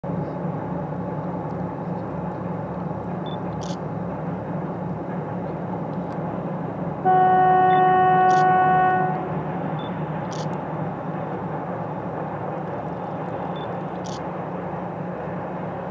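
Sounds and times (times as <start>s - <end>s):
diesel locomotive rumble: 0.0s - 15.9s
locomotive horn blast: 7.0s - 9.5s.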